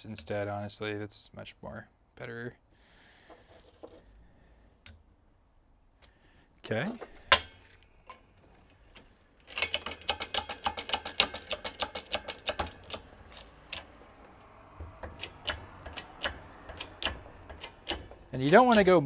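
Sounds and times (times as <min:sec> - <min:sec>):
sharp metal clicks: 0:09.4 - 0:14.0, 0:14.9 - 0:19.0.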